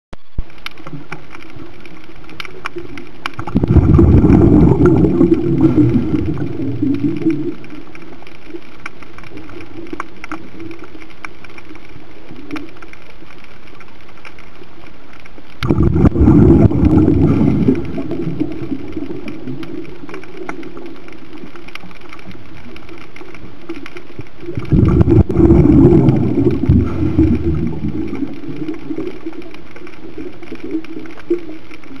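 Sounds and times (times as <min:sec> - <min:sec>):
steady hiss: 0:00.3 - 0:32.0
underwater breath bubbles: 0:03.4 - 0:07.9, 0:15.6 - 0:20.8, 0:24.4 - 0:29.5.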